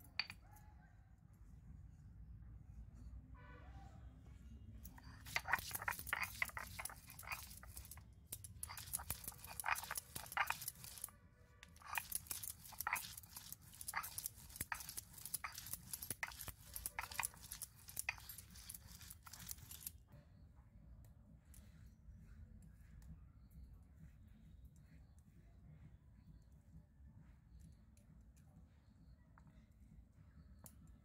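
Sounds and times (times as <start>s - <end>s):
stone roller crushing onions: 4.9s - 11.1s, 11.7s - 19.9s.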